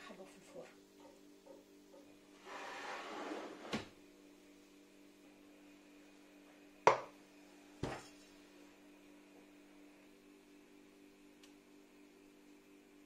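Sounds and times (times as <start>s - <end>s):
metal pan scraping on wood: 2.4s - 3.8s.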